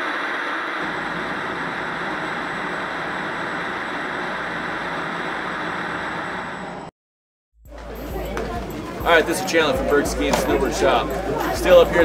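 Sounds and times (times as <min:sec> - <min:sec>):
tv static hiss: 0:00.0 - 0:06.9.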